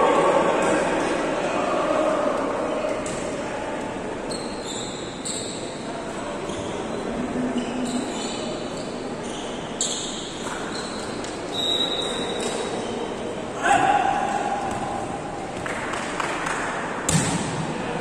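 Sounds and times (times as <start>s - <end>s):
sneaker squeaks on floor: 4.3s - 13.0s
volleyball being struck: 17.1s - 17.6s.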